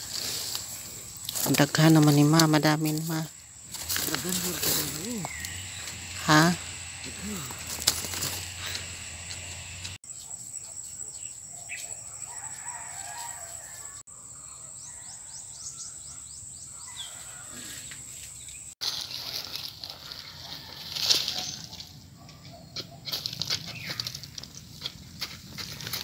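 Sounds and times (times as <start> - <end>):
bird calls: 4.1 - 6.2.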